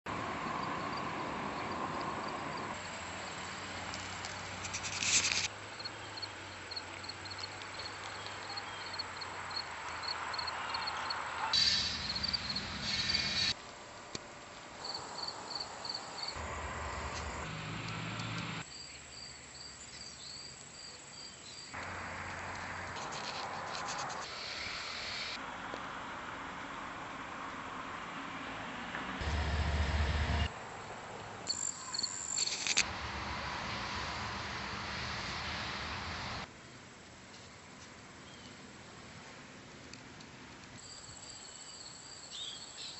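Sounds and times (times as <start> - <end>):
insects chirping: 0.3 - 13.6, 14.8 - 25.4, 31.5 - 32.9, 40.8 - 42.9
loud bursts of noise: 11.6 - 13.6.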